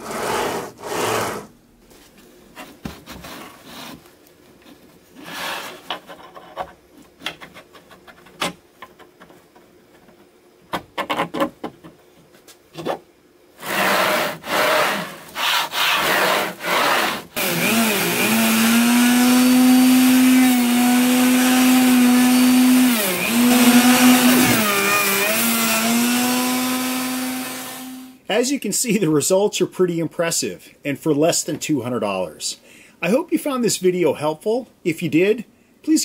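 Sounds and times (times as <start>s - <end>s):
router running: 16.0s - 28.2s.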